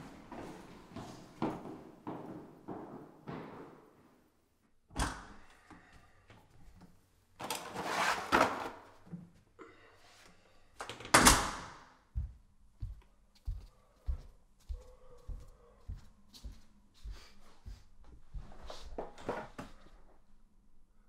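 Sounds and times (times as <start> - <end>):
soft footsteps: 0.0 - 4.3, 12.1 - 19.9
scraping rustling noise: 7.6 - 8.6.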